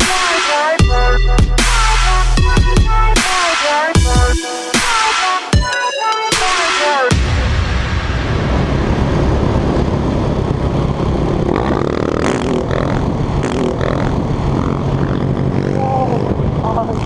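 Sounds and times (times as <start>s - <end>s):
wind rumble on microphone: 8.1s - 17.0s
motorcycle engine running: 11.2s - 17.0s.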